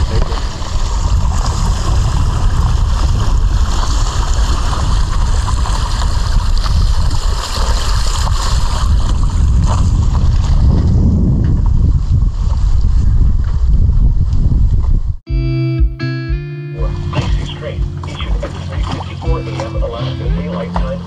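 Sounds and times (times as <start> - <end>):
water rushing past hull: 0.0 - 10.6, 17.0 - 21.0
wind buffeting microphone: 0.0 - 15.3.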